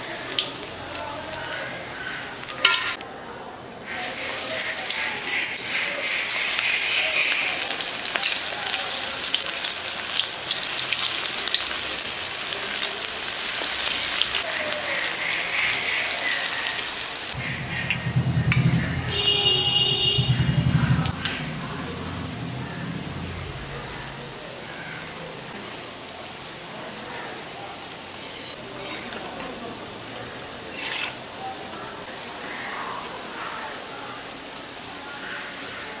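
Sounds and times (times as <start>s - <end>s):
fritters sizzling in hot oil: 4.0s - 18.8s, 28.1s - 33.1s
slotted spoon stirring oil: 28.8s - 29.4s, 30.7s - 31.2s.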